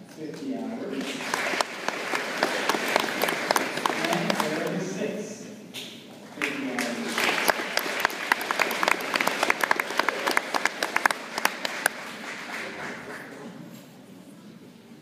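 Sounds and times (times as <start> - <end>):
audience applauding: 1.0 - 4.8, 6.4 - 13.5.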